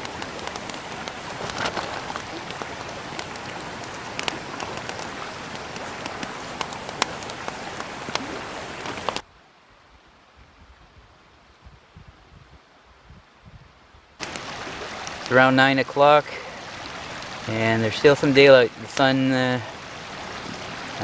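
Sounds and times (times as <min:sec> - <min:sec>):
campfire crackling and popping: 0:00.0 - 0:09.2, 0:14.2 - 0:15.5, 0:16.4 - 0:18.2.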